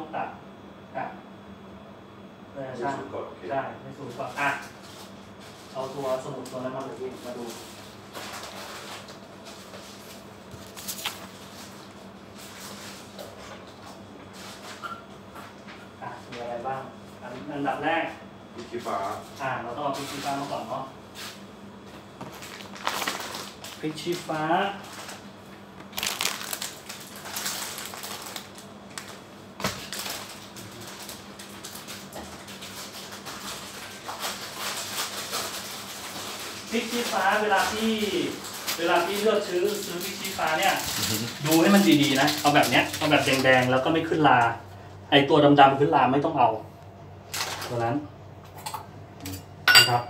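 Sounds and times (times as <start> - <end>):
packaging clicking and rustling: 22.2 - 25.2, 25.8 - 43.8, 47.3 - 47.8
steady low hum: 37.3 - 50.0.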